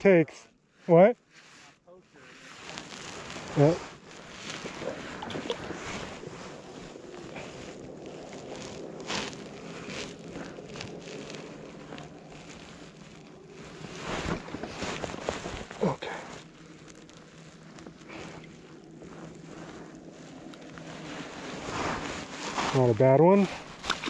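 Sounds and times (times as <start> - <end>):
steady low hum: 0.0 - 24.0
landing net rustling: 2.5 - 24.0
water splashing: 2.9 - 9.8, 23.5 - 24.0.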